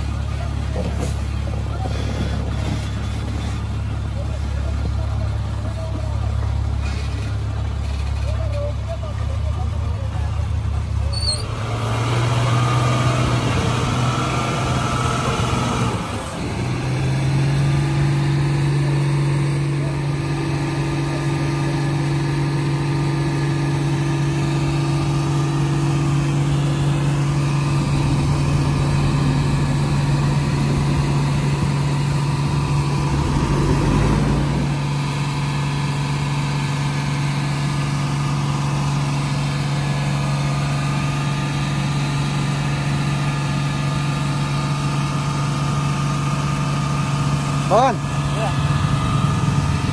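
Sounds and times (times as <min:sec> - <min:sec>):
heavy diesel engines droning: 0:00.0 - 0:49.9.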